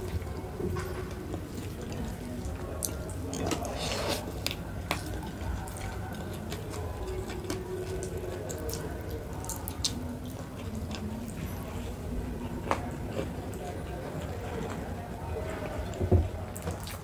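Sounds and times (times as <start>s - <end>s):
wet chewing and mouth smacks: 1.3s - 11.4s.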